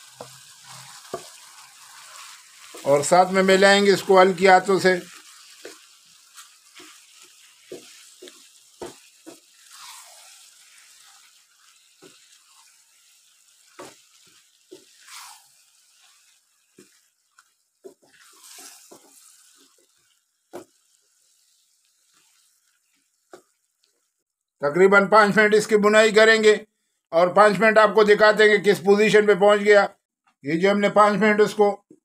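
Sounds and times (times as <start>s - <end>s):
spatula scraping frying pan: 0.0s - 24.0s
food sizzling: 0.0s - 24.4s.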